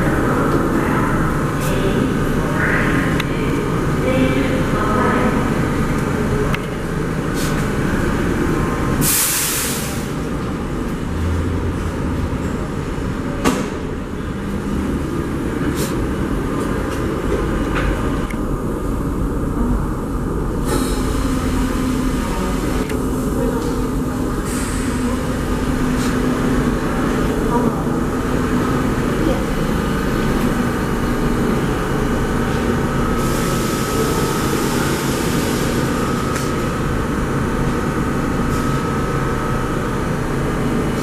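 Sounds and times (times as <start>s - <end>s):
subway train rumbling: 0.0s - 41.0s
air hissing: 9.0s - 10.2s.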